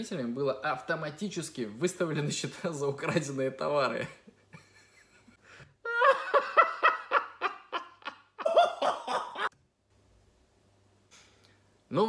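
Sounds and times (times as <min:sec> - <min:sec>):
man laughing: 0:03.9 - 0:09.5.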